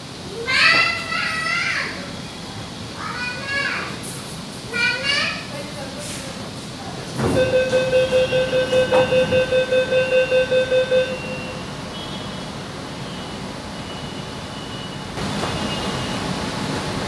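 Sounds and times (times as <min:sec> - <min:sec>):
train carriage hum: 0:00.0 - 0:17.0
train door warning beeps: 0:07.2 - 0:12.1, 0:13.0 - 0:16.3.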